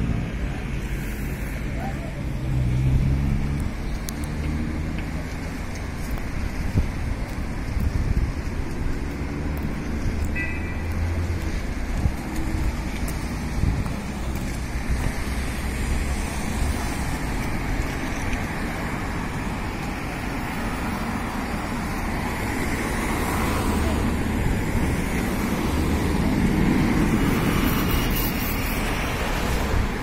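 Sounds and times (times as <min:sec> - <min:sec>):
cars driving past: 0:00.0 - 0:30.0.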